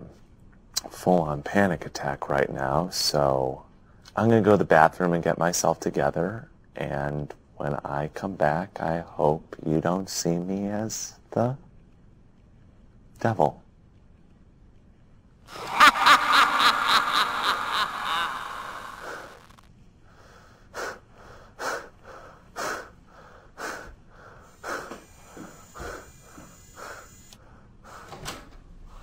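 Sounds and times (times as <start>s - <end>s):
man laughing wheezily: 15.5s - 19.6s.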